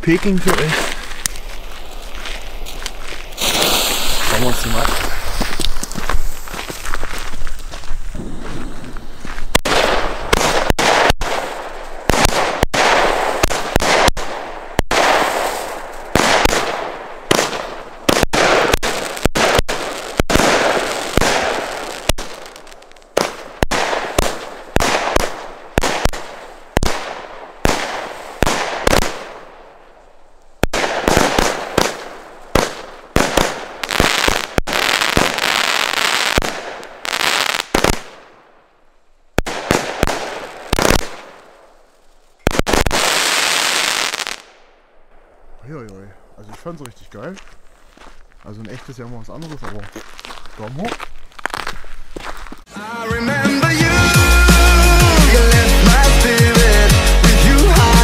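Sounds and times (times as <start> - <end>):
fireworks bangs with crackling: 0.0 - 29.9, 30.6 - 38.5, 39.3 - 44.6.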